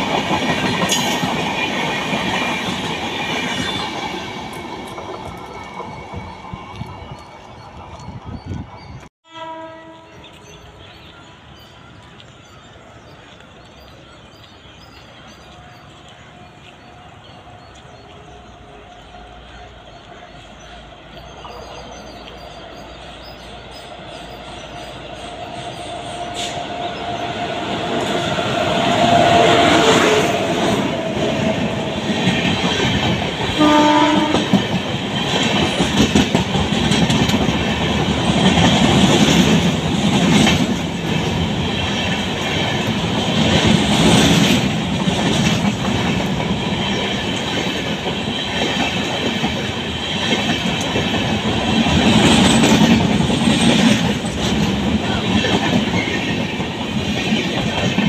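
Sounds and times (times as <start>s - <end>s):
train rumble: 0.0s - 58.0s
train horn: 9.2s - 10.4s, 33.5s - 34.7s.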